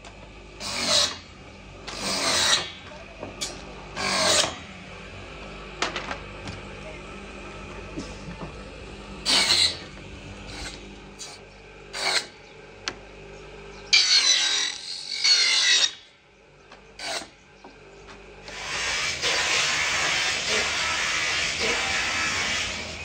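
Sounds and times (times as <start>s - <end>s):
bench machine rasping wood: 0.0s - 4.8s, 7.4s - 13.0s, 13.9s - 16.0s, 16.9s - 17.4s, 18.4s - 23.0s.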